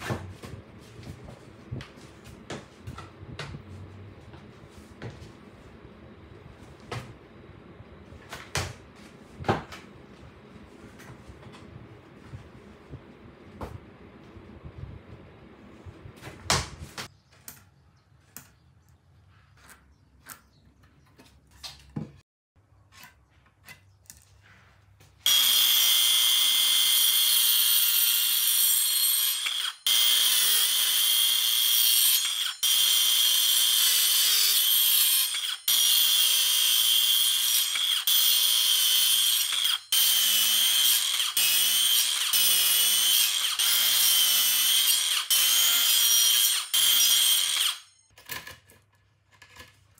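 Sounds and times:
circular saw cutting wood: 25.2s - 48.0s.

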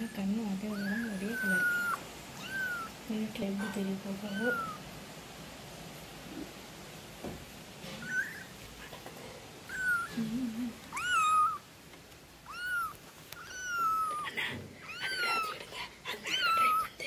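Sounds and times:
kitten mewing: 0.7s - 3.0s, 3.6s - 4.8s, 8.0s - 8.6s, 9.7s - 11.7s, 12.4s - 17.0s.

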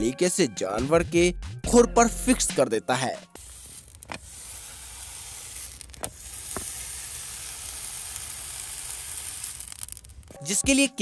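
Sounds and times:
hot horseshoe sizzling on hoof: 3.3s - 10.6s.

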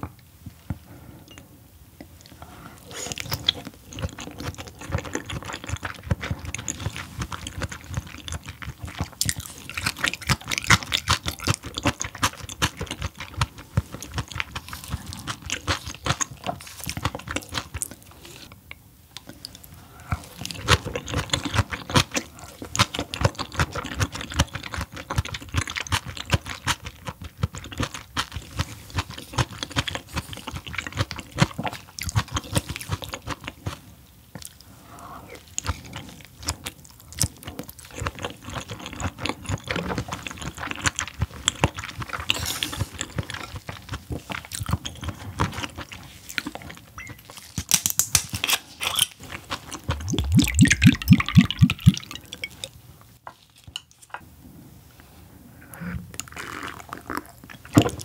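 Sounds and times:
wet chewing clicks and smacks: 3.0s - 18.0s, 20.2s - 33.8s, 35.4s - 48.3s, 48.9s - 52.8s.

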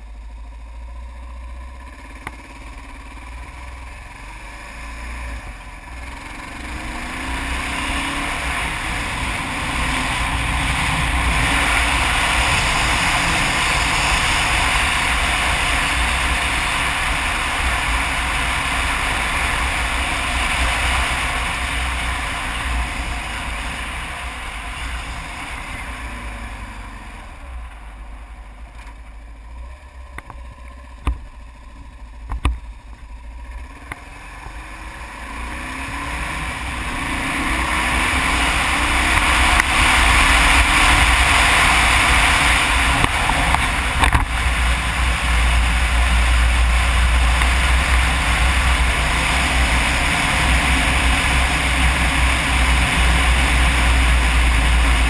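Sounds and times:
motorcycle engine running: 0.0s - 55.0s
wind rush on microphone: 7.9s - 26.1s, 35.9s - 55.0s.

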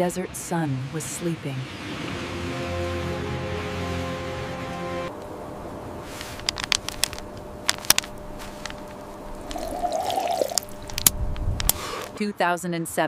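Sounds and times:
musical chord: 2.2s - 5.2s
plastic bottles crackling: 6.2s - 11.1s
water glugging in bottle: 9.4s - 11.1s.

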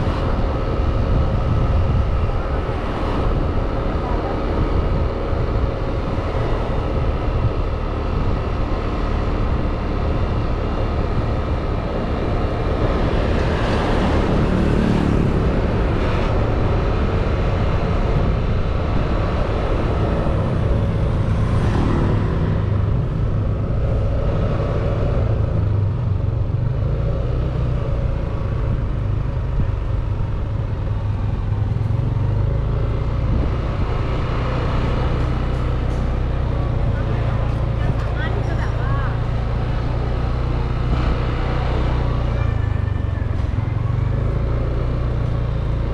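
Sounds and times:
road and wind noise: 0.0s - 45.9s
street traffic: 0.0s - 45.9s.

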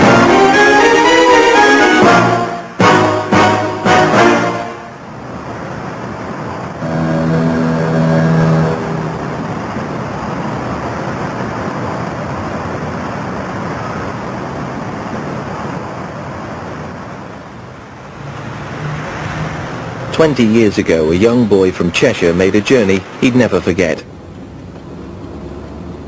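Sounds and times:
ship's horn blast: 0.0s - 5.3s, 6.6s - 10.4s
river and traffic rumble: 0.0s - 26.0s.

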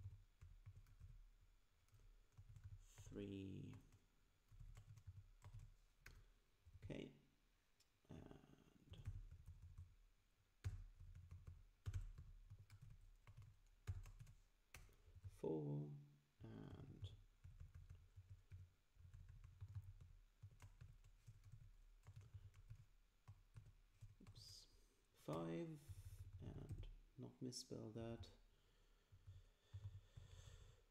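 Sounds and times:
typing on computer keyboard: 0.0s - 1.2s, 1.8s - 6.9s, 8.9s - 9.9s, 10.6s - 15.3s, 17.0s - 24.5s.

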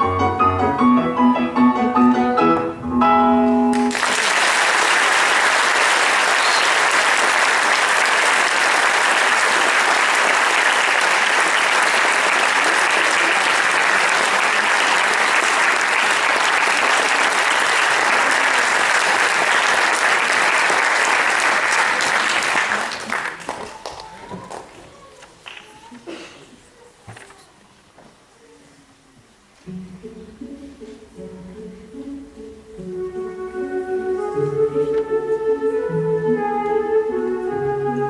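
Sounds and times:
piano notes: 0.0s - 3.9s, 29.6s - 38.0s
audience applauding: 3.7s - 25.6s.

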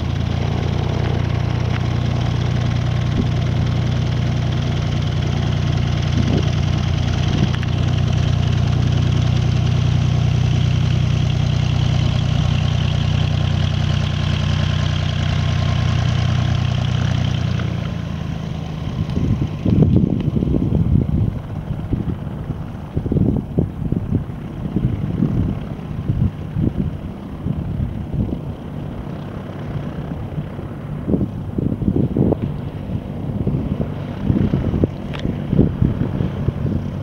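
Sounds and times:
propeller plane engine droning: 0.0s - 37.0s
wind buffeting microphone: 0.5s - 9.6s, 18.8s - 37.0s.

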